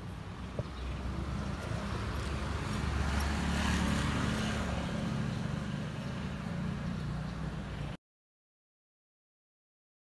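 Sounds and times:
vehicle passing on street: 0.0 - 8.0.

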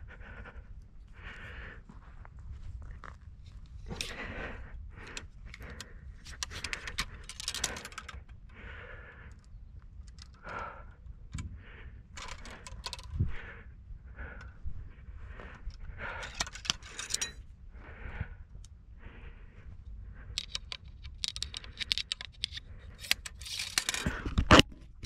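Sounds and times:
gear jangling: 6.3 - 8.2, 16.1 - 17.4.

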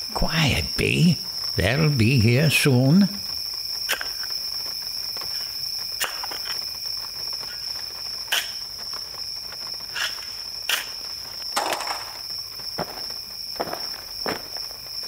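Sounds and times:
high-pitched insect chorus: 0.0 - 15.0
sharp snaps: 3.9 - 4.3.

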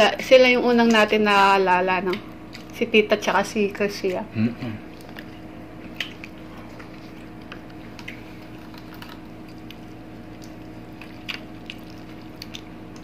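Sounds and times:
chewing mouth sounds: 4.8 - 13.0.

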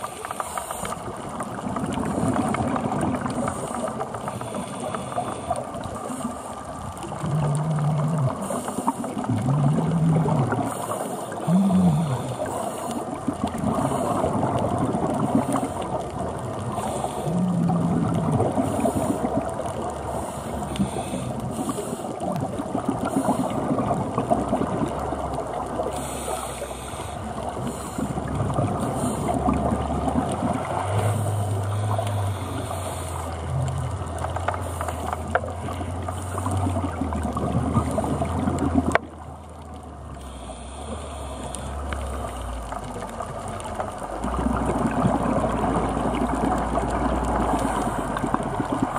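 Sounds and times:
bubbles bubbling and crackling: 0.0 - 48.9
low steady drone: 3.2 - 13.1, 25.9 - 48.9
diver breathing on regulator: 3.2 - 14.6, 15.2 - 22.2, 25.9 - 29.6, 30.8 - 36.9, 40.2 - 42.8
short low hums: 11.4 - 12.5.

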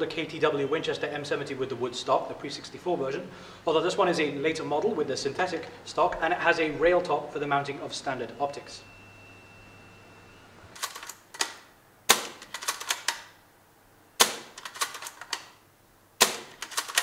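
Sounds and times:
airsoft rifle shot: 12.1 - 12.5, 14.2 - 14.6, 16.2 - 16.6.

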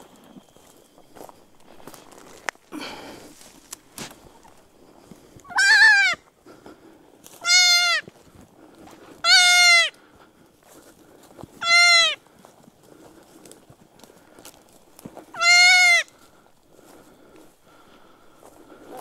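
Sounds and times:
deer fawn bleating: 5.4 - 6.3, 7.3 - 8.1, 9.2 - 10.0, 11.6 - 12.2, 15.3 - 16.3.

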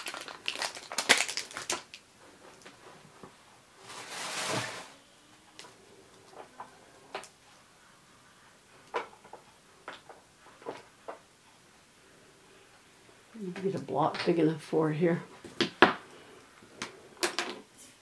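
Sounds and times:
paper rustle: 3.8 - 4.9.

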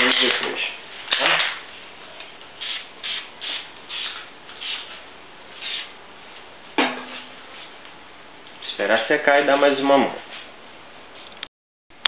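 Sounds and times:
spray paint can hissing: 2.6 - 4.9, 5.6 - 5.9.

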